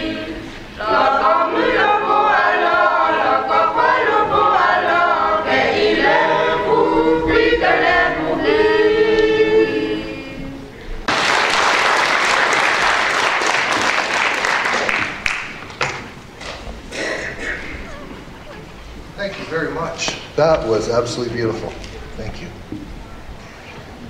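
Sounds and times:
choir singing held chord: 0.0 - 10.8
audience applause: 11.1 - 16.1.

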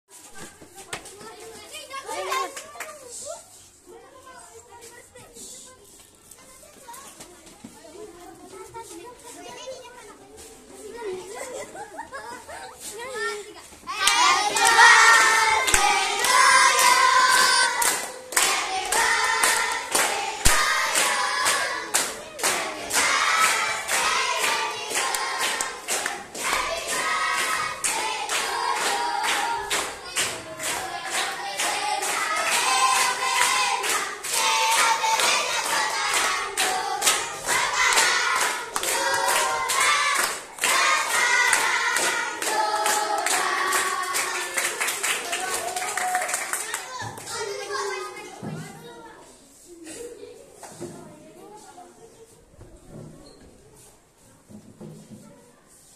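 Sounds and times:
hands clapping: 2.4 - 3.0, 14.0 - 47.5
children singing: 13.9 - 44.9.

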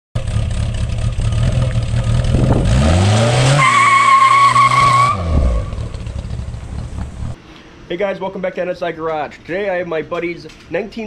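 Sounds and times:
car engine revving: 0.2 - 7.4
tyres squealing: 3.4 - 6.0.

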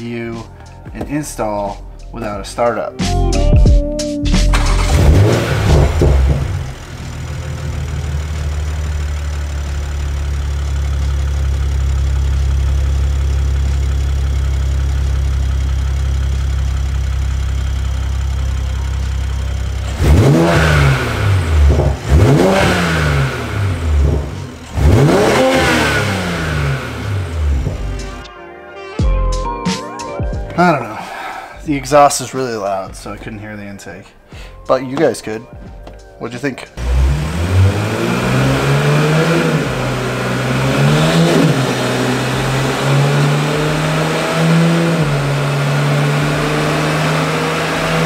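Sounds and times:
car engine idling and revving: 4.3 - 28.3, 36.8 - 48.0.

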